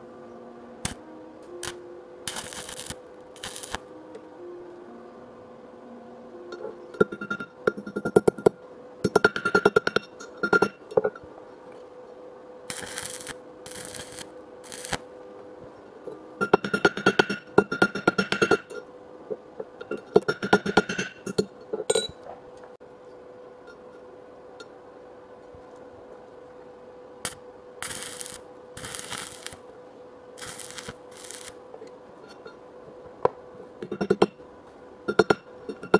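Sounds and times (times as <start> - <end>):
faint hum: 0.0 - 35.9
welding crackling and ticking: 1.6 - 3.8, 12.7 - 15.0, 27.2 - 29.6, 30.4 - 31.6
welding hiss: 1.6 - 3.8, 12.7 - 15.1, 27.2 - 29.6, 30.4 - 31.6.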